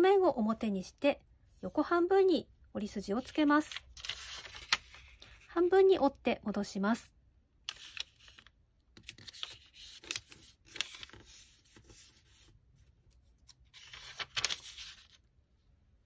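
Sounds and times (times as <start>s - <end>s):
paper crackles: 3.7s - 5.4s, 7.7s - 12.5s, 13.4s - 15.3s
paper rustling and crinkling: 3.7s - 5.5s, 7.7s - 15.3s.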